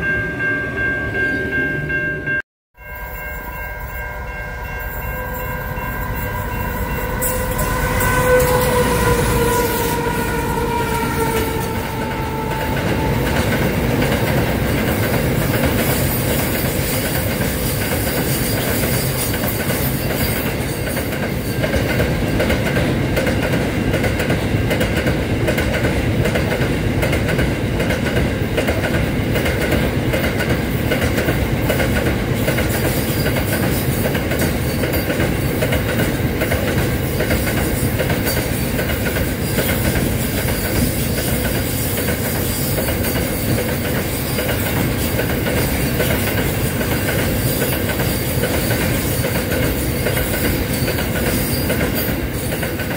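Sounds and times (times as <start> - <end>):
freight train passing: 0.0 - 52.9
locomotive horn: 3.4 - 14.0.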